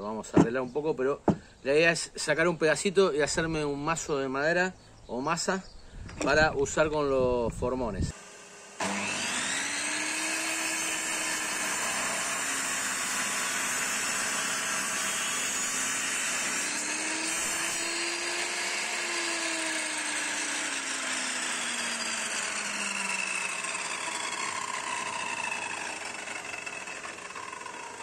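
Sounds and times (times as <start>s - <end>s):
table saw whining: 8.0s - 28.0s.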